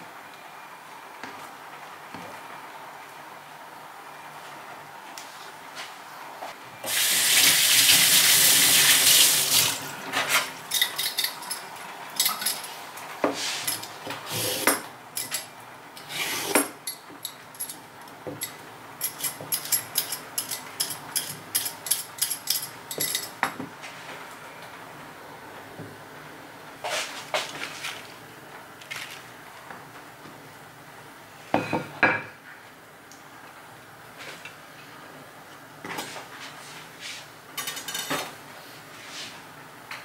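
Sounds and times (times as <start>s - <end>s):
kitchen tap running: 6.8s - 9.9s
utensils clattering on wooden board: 10.1s - 12.7s, 13.6s - 23.5s, 37.6s - 38.3s.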